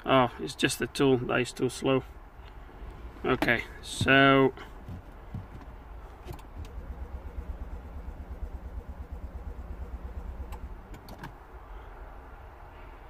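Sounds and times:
starter cranking car engine: 2.9s - 11.4s.

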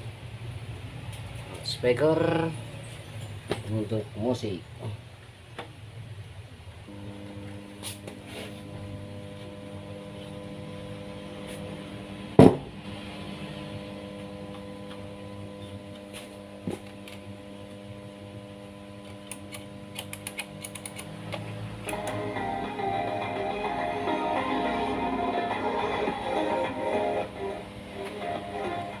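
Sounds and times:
electrical mains hum: 0.0s - 29.0s
loud thump: 12.4s - 12.7s.

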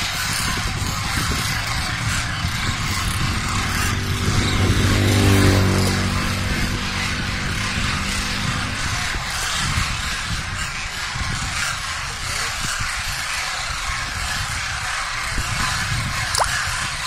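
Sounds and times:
flock of cranes calling: 0.0s - 17.0s
vehicle engine passing: 0.7s - 9.2s.

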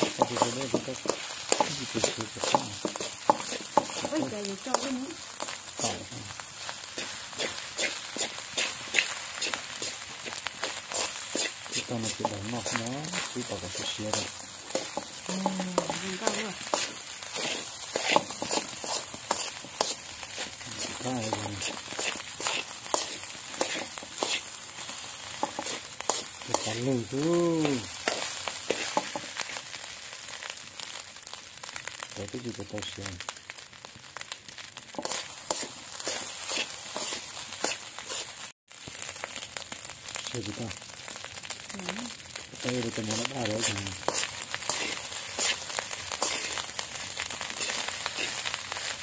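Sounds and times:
metal spoon scraping a wok: 0.0s - 6.1s, 6.9s - 26.9s, 27.9s - 29.6s, 35.0s - 38.4s, 43.2s - 48.9s.

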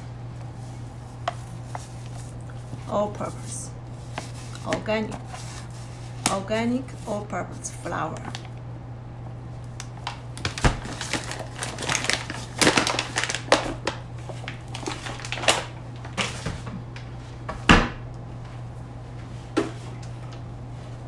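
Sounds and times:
paper bag crinkling: 3.4s - 6.2s, 10.0s - 16.3s.

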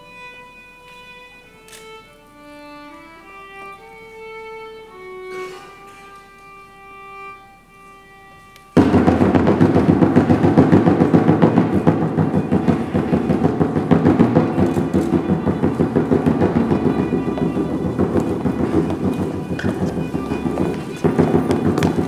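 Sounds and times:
bowed string melody: 0.0s - 22.0s
loud dense clattering noise: 8.8s - 22.0s.

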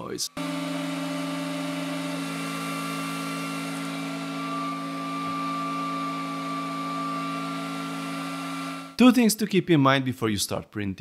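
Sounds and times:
cooling fan whining: 0.4s - 9.0s.

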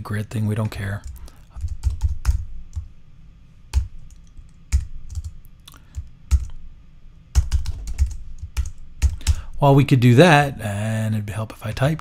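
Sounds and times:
typing on computer keyboard: 1.0s - 2.8s, 3.8s - 6.6s, 7.4s - 9.4s.

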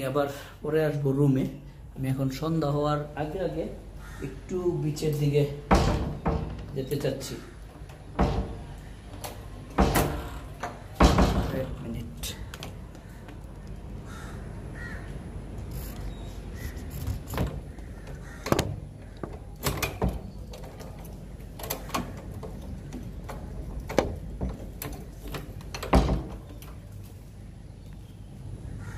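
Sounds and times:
steady background noise: 0.0s - 28.9s
knocks and clunks: 5.6s - 13.1s, 17.0s - 26.9s.

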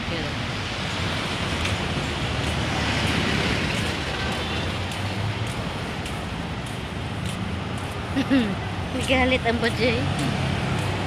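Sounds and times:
car driving past: 10.0s - 11.0s.

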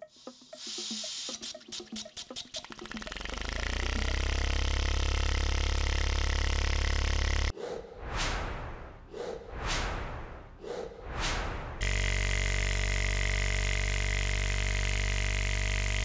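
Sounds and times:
hiss of air: 0.2s - 1.6s
quick ticks: 0.7s - 4.8s.

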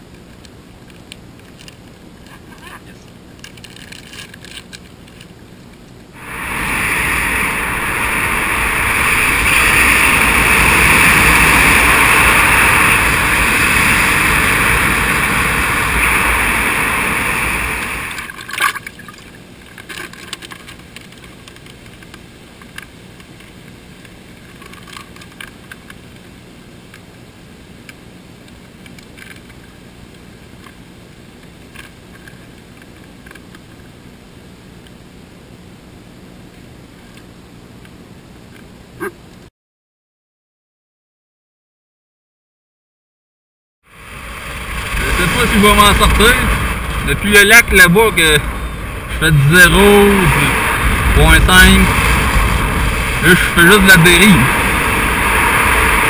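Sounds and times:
loud steady rushing noise: 6.1s - 18.6s, 43.9s - 56.0s
faint water splashing: 17.5s - 21.6s.

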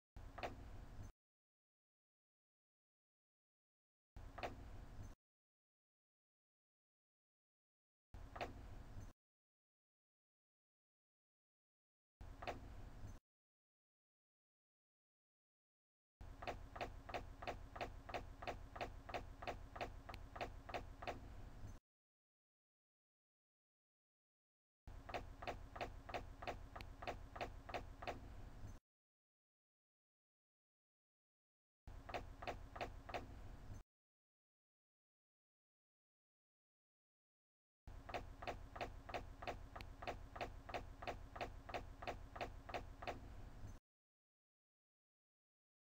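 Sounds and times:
clock ticking: 38.0s - 43.2s.

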